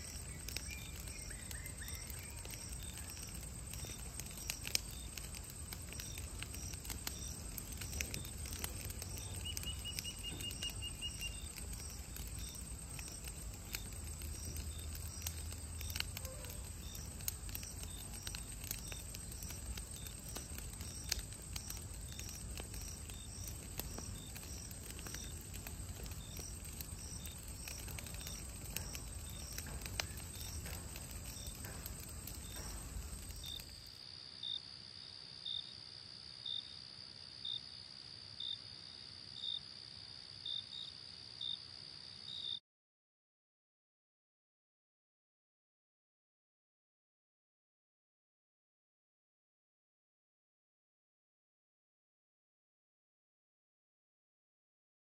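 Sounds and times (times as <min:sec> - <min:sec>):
faint clicks: 0:00.1 - 0:33.7.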